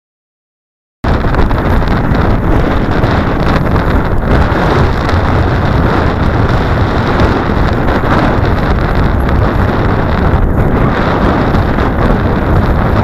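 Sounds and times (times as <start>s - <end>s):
wind rumbling on microphone: 1.0s - 13.0s.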